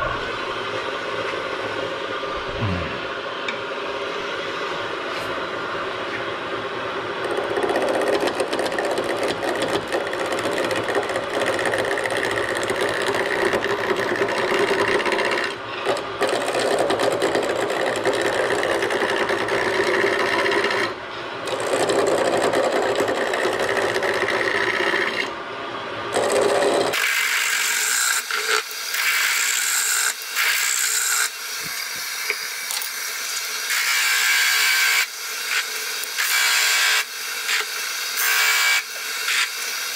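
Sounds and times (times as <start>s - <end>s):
tool scraping turning wood: 7.2s - 20.9s
gouge cutting spinning wood: 7.2s - 25.3s, 26.1s - 32.3s
wood lathe hum: 7.2s - 25.3s, 26.1s - 39.9s.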